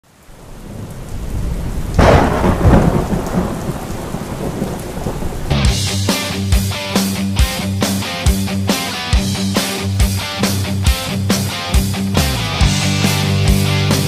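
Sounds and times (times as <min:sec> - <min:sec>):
rain: 0:00.0 - 0:14.0
rumbling thunderclap: 0:00.5 - 0:06.1
heavy electric guitar rock music: 0:05.4 - 0:14.0.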